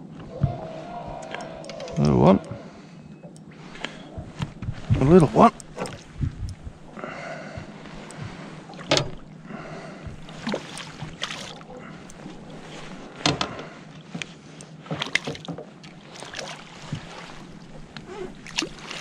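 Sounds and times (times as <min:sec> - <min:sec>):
fish splashing at water surface: 0:10.2 - 0:11.8.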